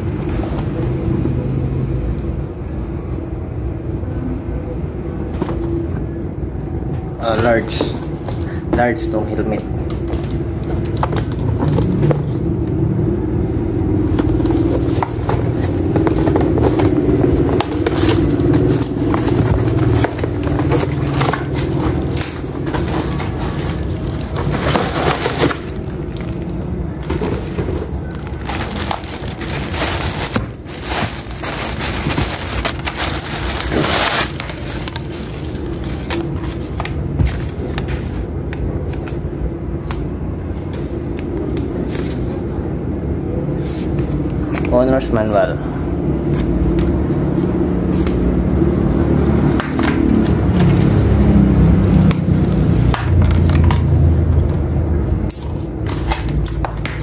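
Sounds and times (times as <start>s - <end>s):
steady low hum: 0.0s - 57.0s
cardboard and paper rustling: 7.2s - 12.5s, 14.0s - 39.3s, 40.6s - 42.5s, 43.6s - 44.9s.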